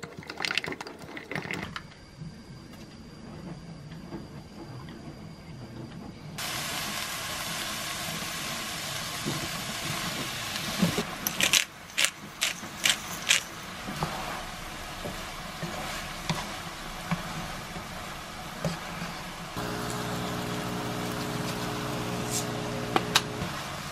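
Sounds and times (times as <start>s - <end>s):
vegetables sizzling in a wok: 6.4s - 23.9s.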